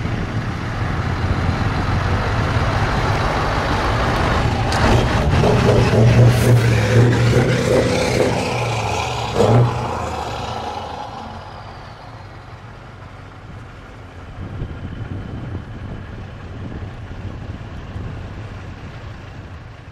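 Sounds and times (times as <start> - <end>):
loud truck engine passing: 0.0 - 14.4.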